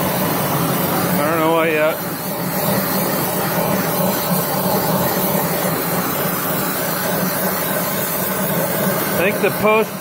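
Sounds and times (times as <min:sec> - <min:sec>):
gas torch flame hissing: 0:00.0 - 0:10.0.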